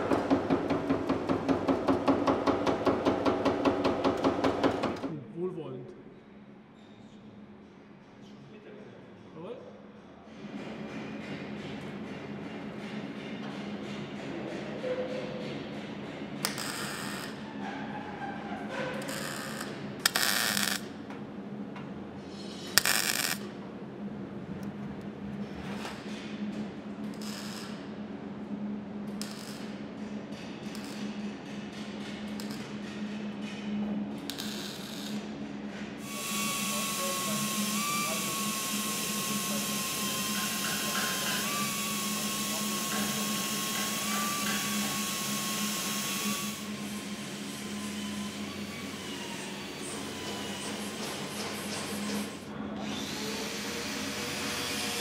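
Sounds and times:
steady background hum: 0.0s - 55.0s
welding torch bursts: 22.8s - 23.4s
power tool hiss: 36.0s - 48.3s.

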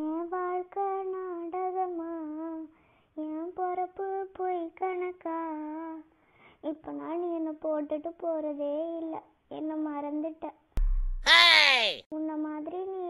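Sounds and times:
high-pitched voice singing: 11.2s - 13.0s.

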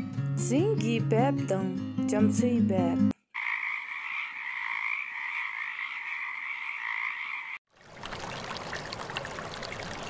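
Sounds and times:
frogs calling in chorus: 3.3s - 7.6s
running water: 7.7s - 10.0s.

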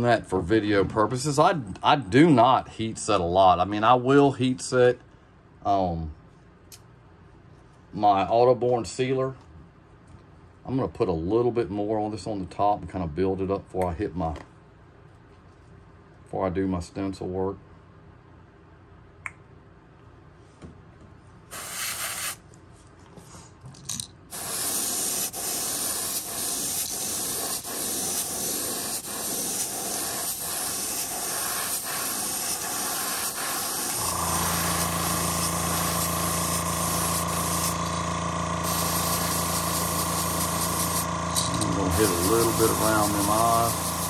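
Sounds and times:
airbrush spraying hiss: 21.5s - 22.4s, 24.3s - 44.0s
motor humming: 33.8s - 44.0s.

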